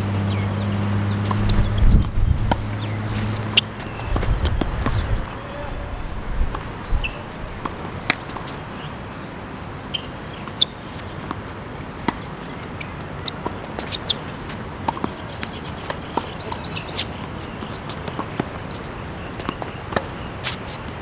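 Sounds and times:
shoes chirping on court: 0.5s - 5.9s, 9.9s - 21.0s
tennis ball struck and bouncing: 1.2s - 5.0s.

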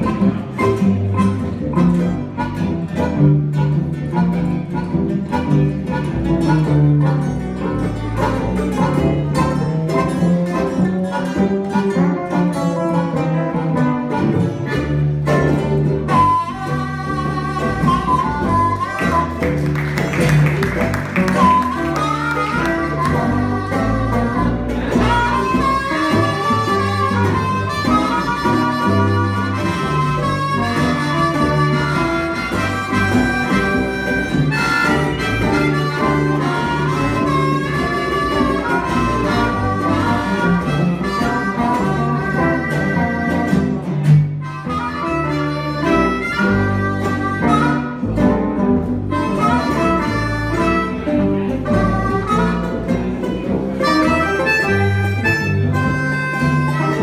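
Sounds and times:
harmonica lead: 0.0s - 57.0s
strummed guitars: 0.0s - 57.0s
walking upright bass: 0.0s - 57.0s.

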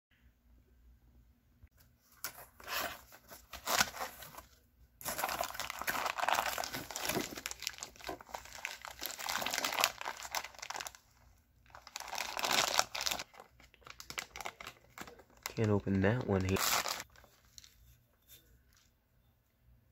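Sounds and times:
plastic bag crinkling: 5.0s - 17.8s.

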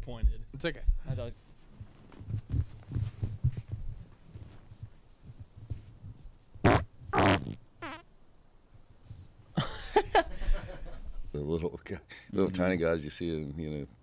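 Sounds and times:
man farting: 6.6s - 8.1s.

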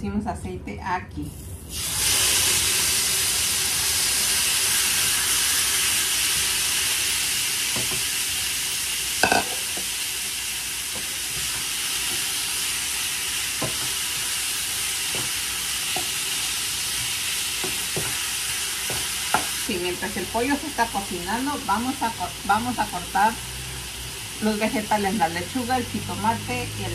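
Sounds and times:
chicken sizzling in a frying pan: 1.7s - 26.9s
wooden spatula knocking on pan: 7.7s - 8.0s, 13.6s - 13.9s.

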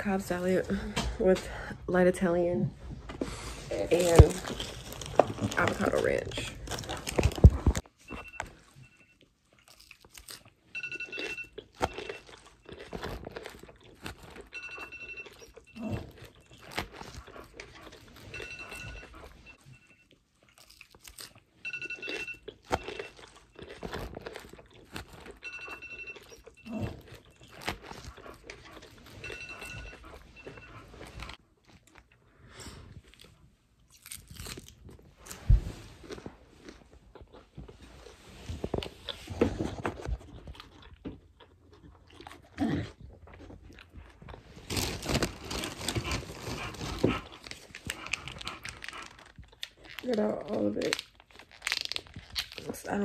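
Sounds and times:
crunching lettuce: 3.3s - 53.0s
faint two-tone beep: 10.8s - 12.2s, 14.6s - 16.0s, 18.3s - 20.1s, 21.6s - 22.4s, 25.4s - 26.9s, 29.2s - 30.8s.

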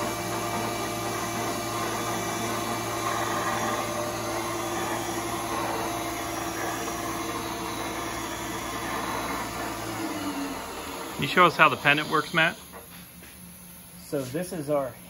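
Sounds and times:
milling machine motor humming: 0.0s - 13.3s.

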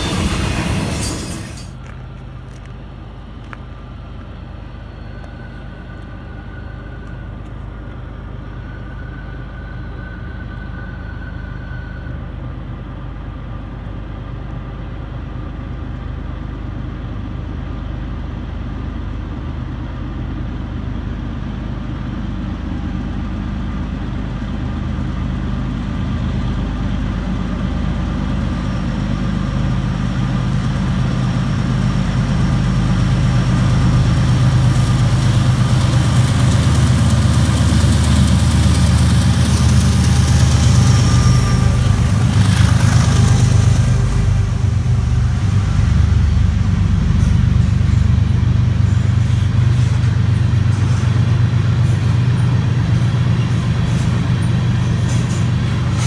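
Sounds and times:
diesel locomotive engine drone: 0.0s - 56.0s.

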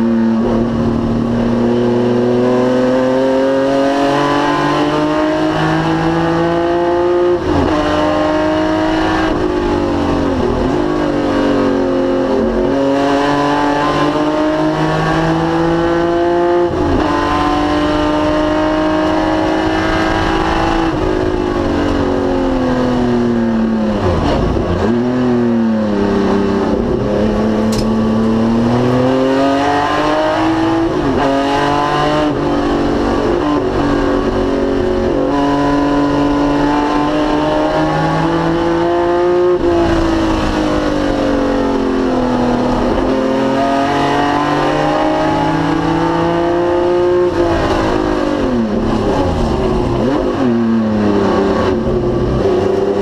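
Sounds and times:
race car engine shifting gears: 26.4s - 32.4s.

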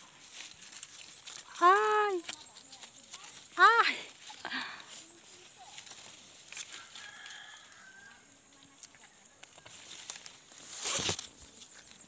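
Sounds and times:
leaves and branches rustling: 0.0s - 12.0s
rooster crowing faintly: 6.6s - 8.4s.

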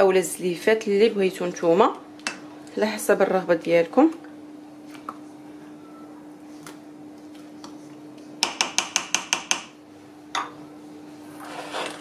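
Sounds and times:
faint steady hum: 0.0s - 12.0s
spatula tapping metal saucepan: 8.4s - 9.7s.

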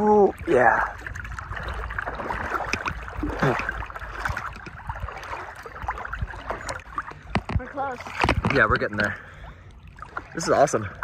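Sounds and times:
water sloshing and splashing: 0.0s - 11.0s.

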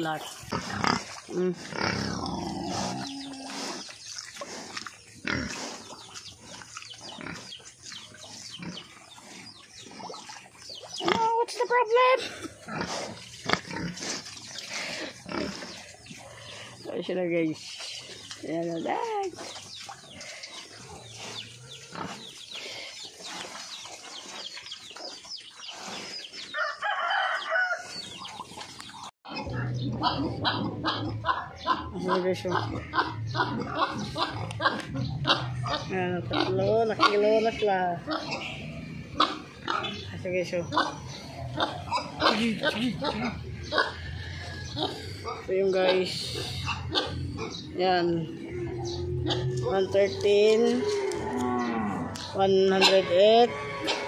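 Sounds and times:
pigs grunting: 0.0s - 26.4s, 29.3s - 54.0s
chickens clucking: 0.0s - 54.0s
rooster crowing: 26.5s - 27.9s.

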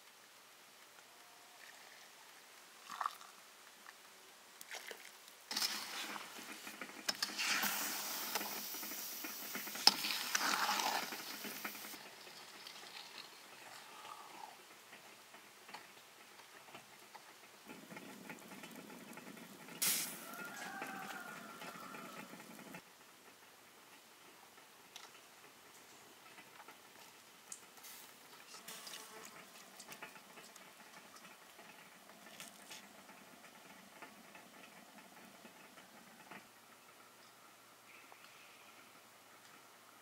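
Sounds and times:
metal spoon stirring liquid: 5.5s - 11.6s.

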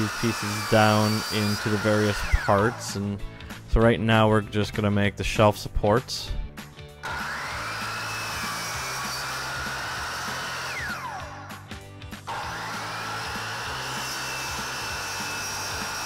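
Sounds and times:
miter saw motor whine: 0.0s - 3.0s, 7.0s - 11.5s, 12.3s - 16.0s.

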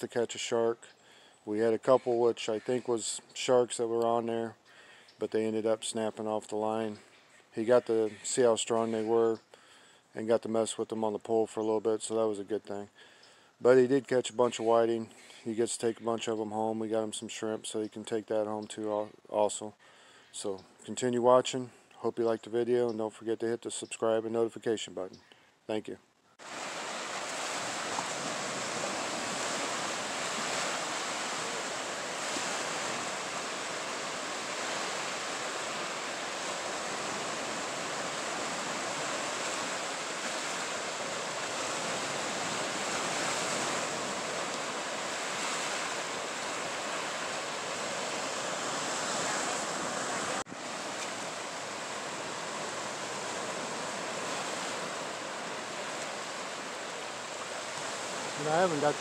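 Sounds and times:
surf breaking on beach: 26.4s - 59.0s.

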